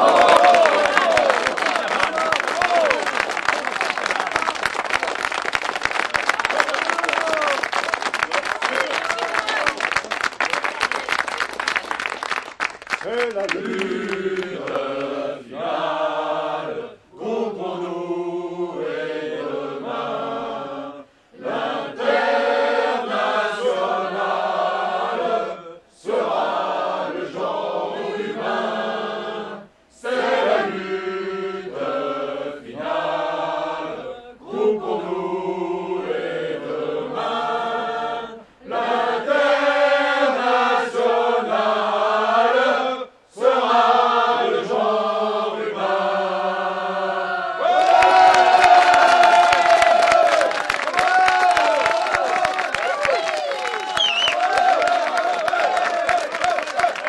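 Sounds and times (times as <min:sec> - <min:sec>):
group singing in unison: 0:13.3 - 0:50.5.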